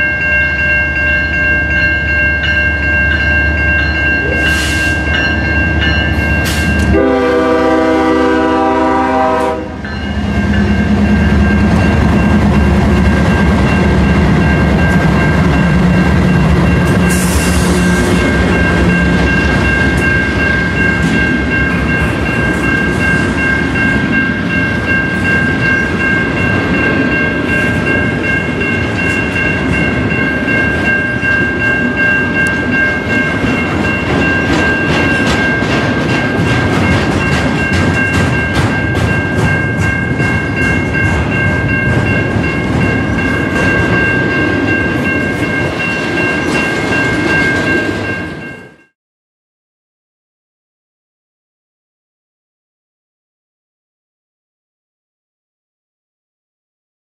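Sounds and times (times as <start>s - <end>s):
train rumbling past: 0.0s - 48.9s
crossing warning bell ringing: 0.0s - 49.0s
wheels clacking over rail joints: 32.4s - 48.1s.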